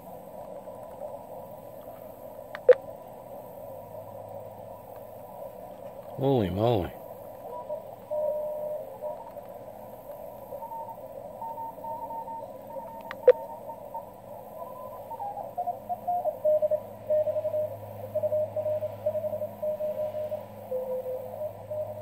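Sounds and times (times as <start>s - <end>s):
radio hiss: 0.0s - 22.0s
morse code beeping: 6.2s - 9.4s, 10.5s - 22.0s
sharp double click: 13.0s - 13.4s.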